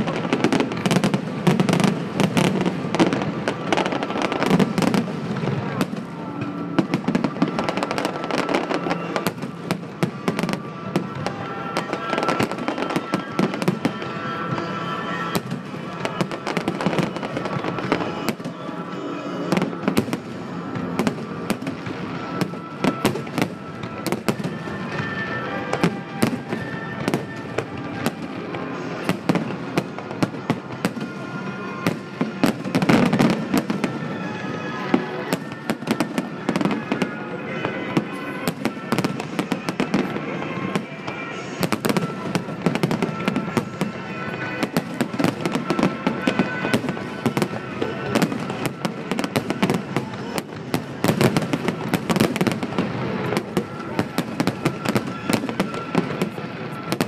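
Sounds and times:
fireworks bangs and crackles: 0.0s - 57.0s
music playing: 0.0s - 57.0s.

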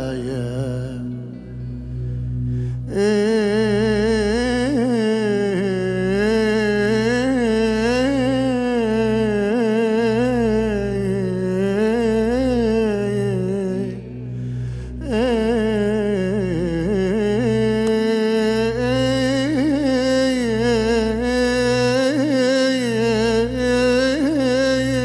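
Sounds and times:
low steady band drone: 0.0s - 25.0s
man singing wordless vocal line: 0.0s - 25.0s.

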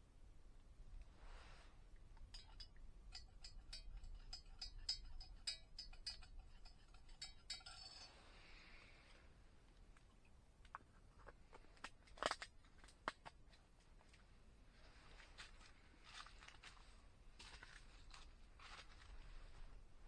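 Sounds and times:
light ringing clinks: 2.2s - 8.9s
soft rustling: 13.5s - 20.0s.

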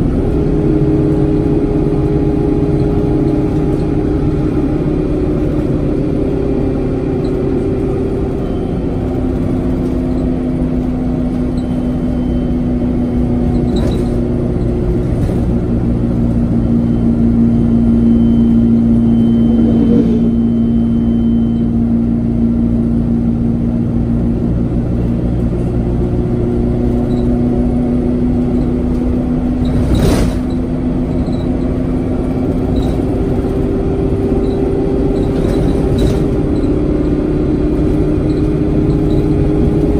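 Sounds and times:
bus diesel engine droning: 0.0s - 39.9s.

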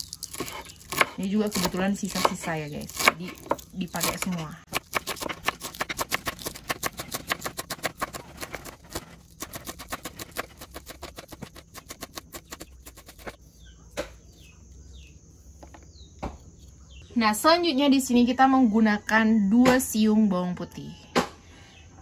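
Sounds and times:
small bird chirping faintly: 0.0s - 19.1s
knife chopping on wooden board: 0.3s - 13.4s.

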